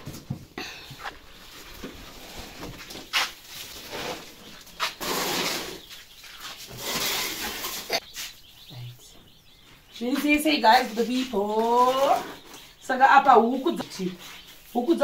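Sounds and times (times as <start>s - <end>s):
chicks cheeping: 0.2s - 15.0s
rustling noise: 1.0s - 8.4s.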